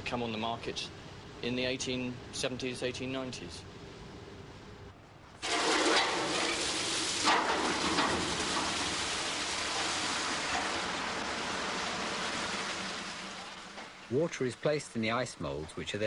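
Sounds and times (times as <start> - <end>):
water gushing from pipes: 5.4 - 14.1.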